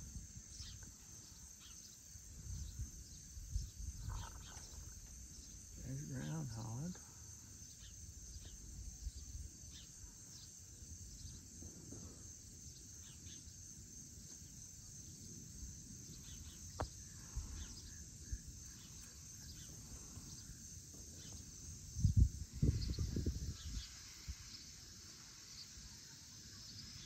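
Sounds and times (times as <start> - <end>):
faint chirps: 0.0 - 27.0
insect chorus trilling: 0.0 - 27.0
wind rumble on microphone: 2.2 - 5.4, 21.8 - 24.6.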